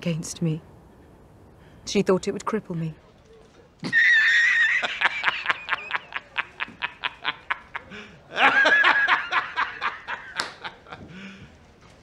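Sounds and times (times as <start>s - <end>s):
man laughing heartily: 3.8s - 11.2s.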